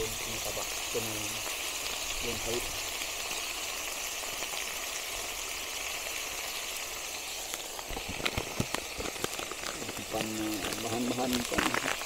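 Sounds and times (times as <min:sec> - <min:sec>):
high background hiss: 0:00.0 - 0:12.0
plastic sachet crinkling: 0:07.5 - 0:12.0.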